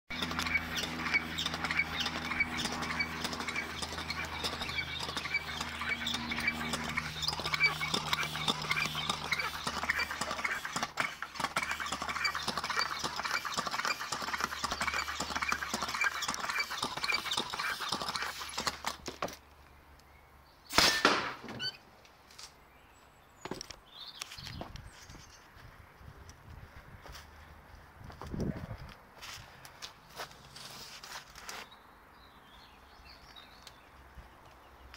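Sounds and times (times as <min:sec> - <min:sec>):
floor pump strokes: 0:00.2 - 0:19.0
air cannon firing burst: 0:20.7 - 0:21.4.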